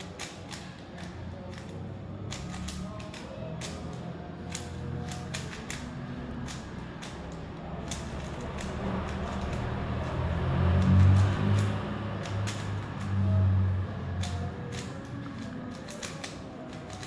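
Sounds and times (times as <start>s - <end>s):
puzzle cube clicking and rattling: 0.0s - 13.4s, 14.0s - 17.0s.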